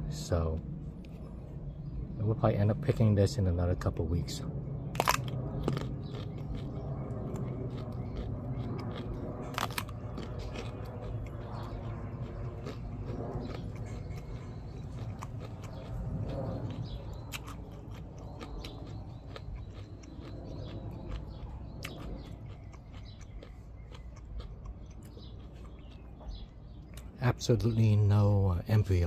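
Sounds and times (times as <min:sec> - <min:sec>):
person chewing crunchy fruit: 0:05.0 - 0:27.2.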